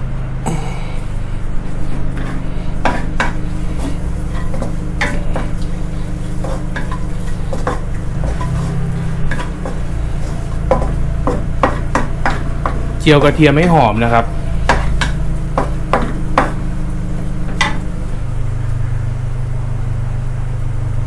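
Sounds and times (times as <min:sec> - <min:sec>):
steady low hum: 0:00.0 - 0:21.0
spatula scraping a wok: 0:01.0 - 0:13.7, 0:14.4 - 0:18.1
garlic frying in oil: 0:01.6 - 0:21.0.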